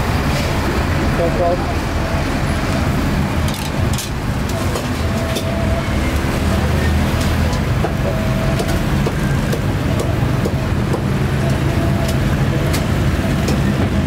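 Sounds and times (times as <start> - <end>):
motorbike engines running: 0.0 - 14.0
street traffic: 0.0 - 14.0.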